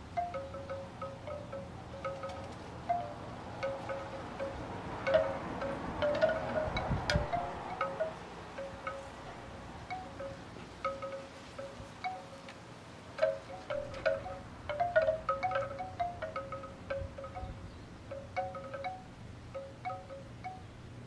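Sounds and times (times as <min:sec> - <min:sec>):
bamboo wind chime clonking: 0:00.0 - 0:12.6, 0:13.2 - 0:20.7
wind rumble on microphone: 0:03.4 - 0:10.4, 0:16.2 - 0:18.4.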